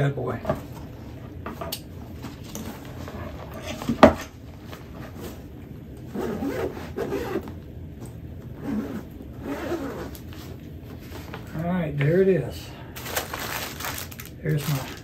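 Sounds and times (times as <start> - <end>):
fabric rubbing and rustling: 2.0 - 7.6, 8.4 - 11.5, 13.0 - 15.0.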